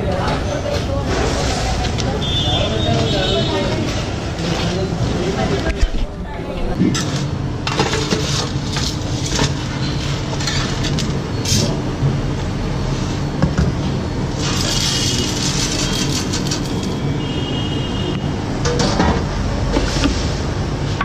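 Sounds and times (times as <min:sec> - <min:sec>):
lentils rattling in steel tumbler: 0:14.4 - 0:17.0.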